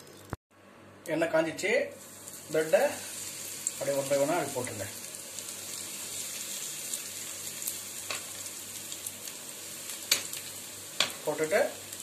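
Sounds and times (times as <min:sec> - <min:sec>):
bread frying in hot oil: 0:01.6 - 0:12.0.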